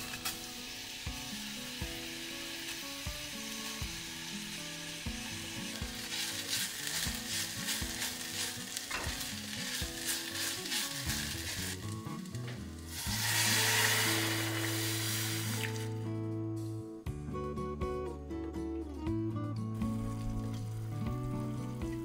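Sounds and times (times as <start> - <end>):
water poured into hot pan hissing: 0.0 - 16.0
onions sizzling in a saucepan: 0.0 - 16.1, 19.8 - 22.0
spatula scraping a pan: 5.8 - 11.9.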